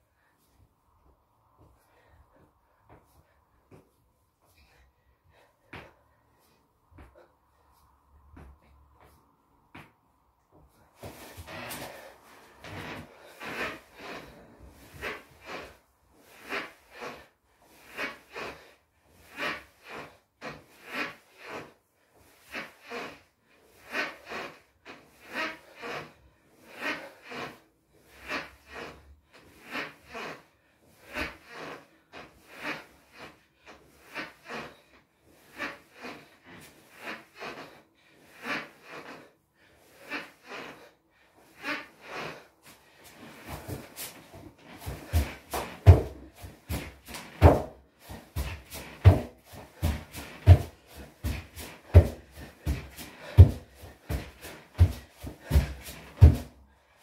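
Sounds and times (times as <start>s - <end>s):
boy breathing hard: 22.4s - 57.0s.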